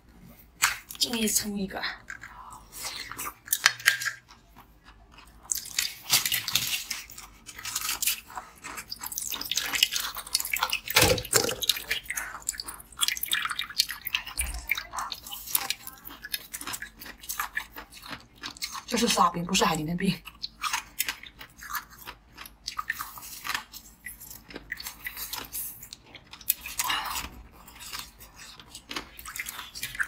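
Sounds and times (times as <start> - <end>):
crunching frozen slush ice: 5.5 - 14.0.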